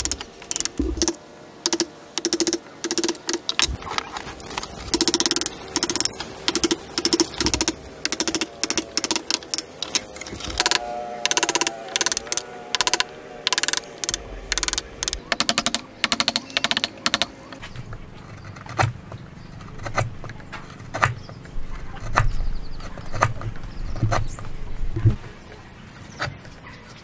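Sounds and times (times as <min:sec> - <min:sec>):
chisel scraping wood: 0:03.4 - 0:25.2.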